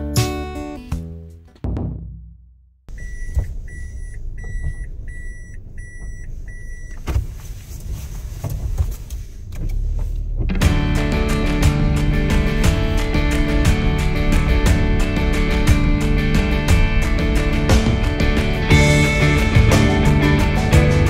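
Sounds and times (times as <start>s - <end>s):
guitar music: 0.0s - 1.8s, 10.5s - 21.0s
car warning chime beeping: 2.9s - 7.1s
engine hum: 2.9s - 21.0s.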